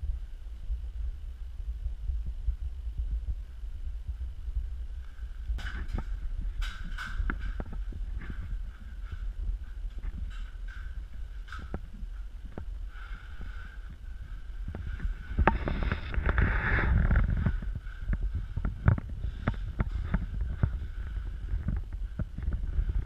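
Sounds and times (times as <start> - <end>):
steady low rumble: 0.0 - 23.0
rustling: 4.9 - 23.0
footsteps: 5.0 - 23.0.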